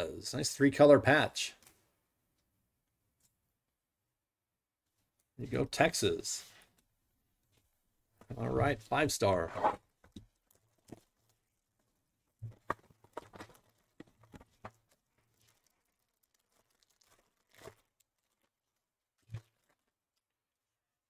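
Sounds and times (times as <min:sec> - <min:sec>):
cards and box clicking and rustling: 0:12.5 - 0:14.9
foil pack tearing and crinkling: 0:12.6 - 0:20.2.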